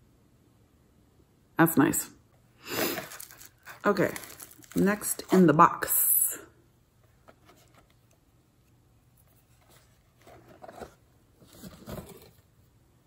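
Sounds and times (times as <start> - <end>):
cardboard packaging handling: 3.0 - 5.6, 7.2 - 8.1, 9.2 - 12.6.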